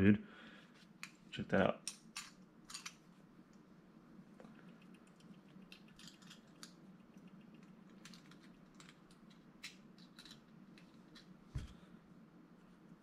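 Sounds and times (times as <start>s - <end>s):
low steady hum: 0.0s - 13.0s
toy car parts clicking: 4.9s - 11.3s.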